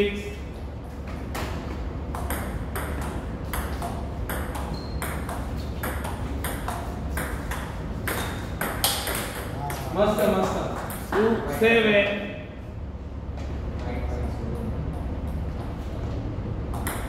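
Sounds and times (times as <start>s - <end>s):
table tennis ball clicking: 2.1s - 9.5s.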